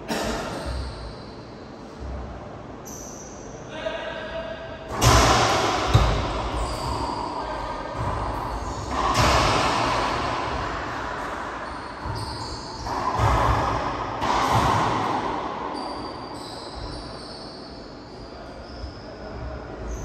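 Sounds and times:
racquetball smacks echoing: 0:04.9 - 0:12.2, 0:12.8 - 0:15.7.

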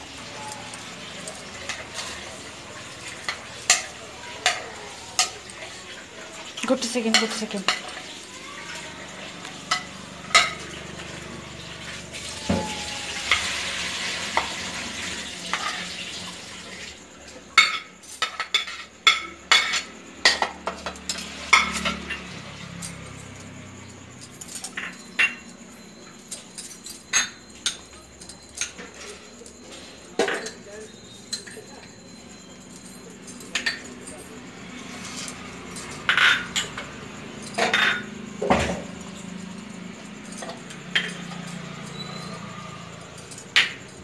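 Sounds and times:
spoon tapping and scraping bowls: 0:00.0 - 0:10.9, 0:17.6 - 0:23.6, 0:24.2 - 0:44.0.

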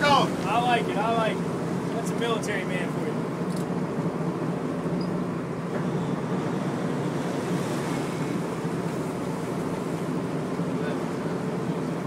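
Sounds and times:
boat engines humming: 0:00.0 - 0:12.0.

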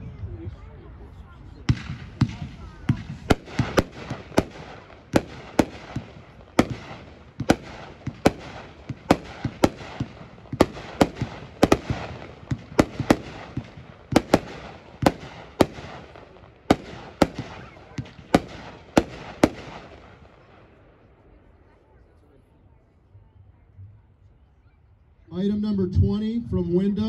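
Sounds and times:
firework rumble: 0:00.0 - 0:21.7
firework booms: 0:01.6 - 0:20.6.

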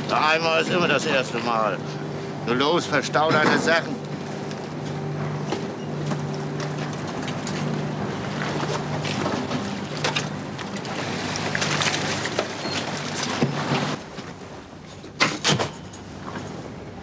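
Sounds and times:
ship engine humming: 0:00.0 - 0:17.0
knocks and clanks on steel deck: 0:15.0 - 0:16.6.

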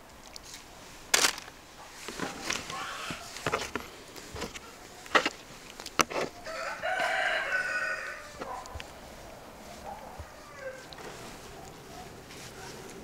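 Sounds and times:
rooster crowing: 0:06.4 - 0:08.6, 0:10.1 - 0:10.9.

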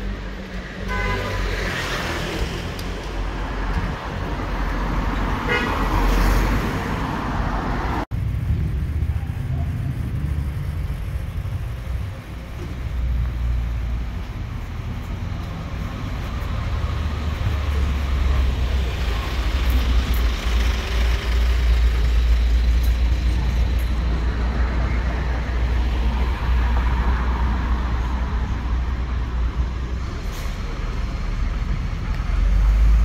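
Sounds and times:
low rumble of traffic: 0:00.0 - 0:33.0
bus engine running: 0:08.0 - 0:33.0.

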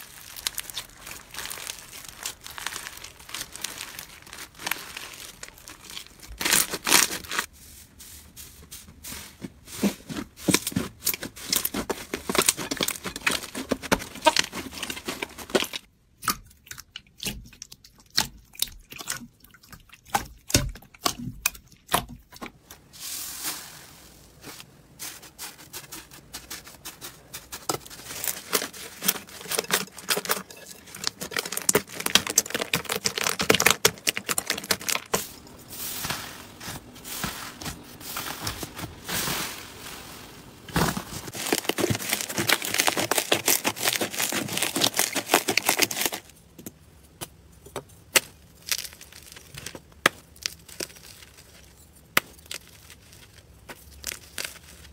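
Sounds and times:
brittle material crunching: 0:00.0 - 0:07.5, 0:09.7 - 0:15.9, 0:20.1 - 0:46.4, 0:48.1 - 0:54.9
slime crackling and popping: 0:00.0 - 0:07.5, 0:27.7 - 0:35.2, 0:40.7 - 0:46.3, 0:48.1 - 0:54.9.

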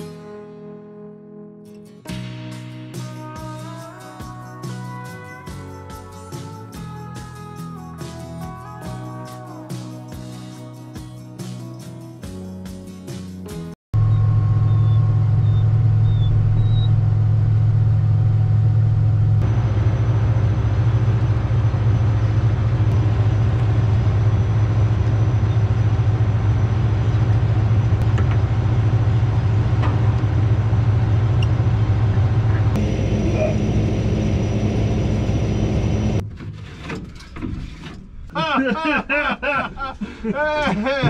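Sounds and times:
combine harvester droning: 0:14.0 - 0:36.2.

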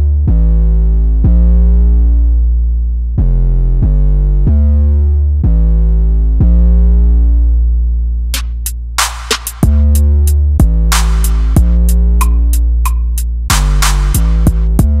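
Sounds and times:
synthesizer chords over deep bass: 0:00.0 - 0:15.0
drum machine hits: 0:08.4 - 0:15.0.

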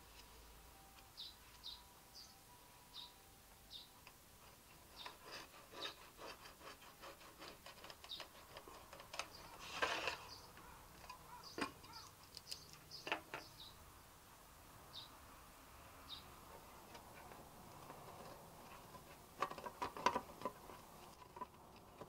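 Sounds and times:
pen scratching on paper: 0:04.4 - 0:10.4
tin scraping: 0:04.4 - 0:12.0, 0:16.6 - 0:22.0.

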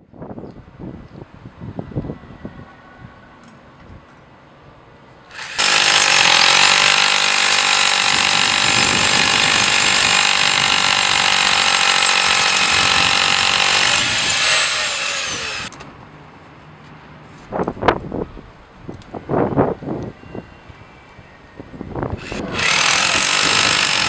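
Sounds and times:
hammer drill boring into concrete: 0:05.3 - 0:15.7, 0:22.2 - 0:24.0.

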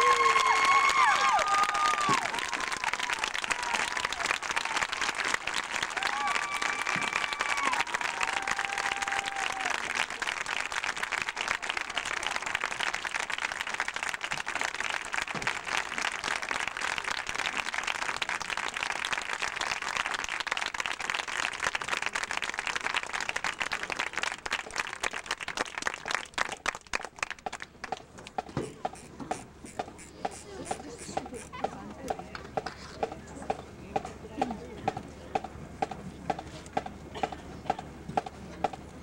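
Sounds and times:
crowd applauding: 0:00.0 - 0:28.0.

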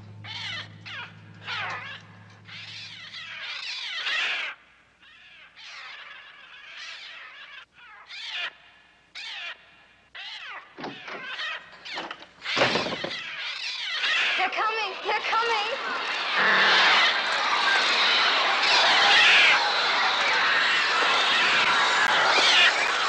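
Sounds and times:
shrill screeching bird cries: 0:00.0 - 0:23.0.

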